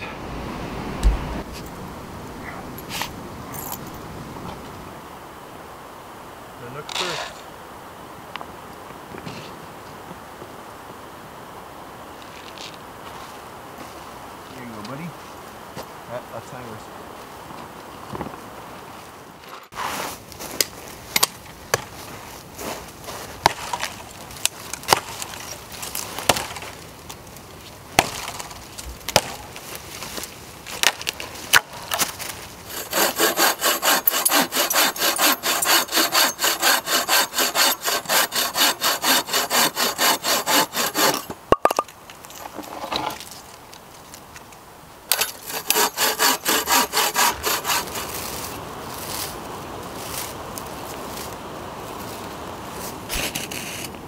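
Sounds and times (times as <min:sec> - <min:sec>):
bow saw cutting wood: 0:32.7 - 0:41.3, 0:45.1 - 0:48.4.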